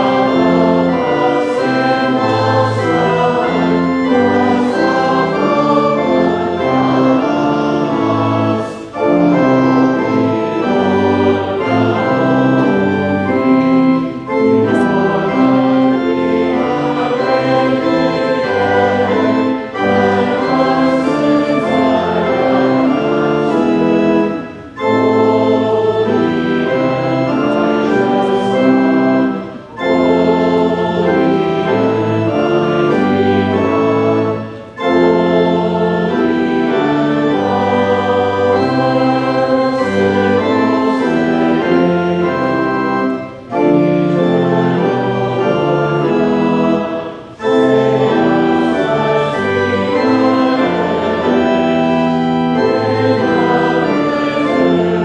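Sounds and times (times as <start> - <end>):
congregation singing a hymn: 0.0 - 55.0
pipe organ: 0.0 - 55.0.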